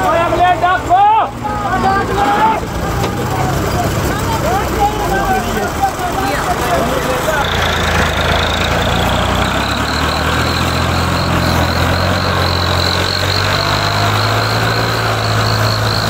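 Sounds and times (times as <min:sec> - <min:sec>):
tractor diesel engine idling: 0:00.0 - 0:16.0
high-pitched whine: 0:07.4 - 0:16.0.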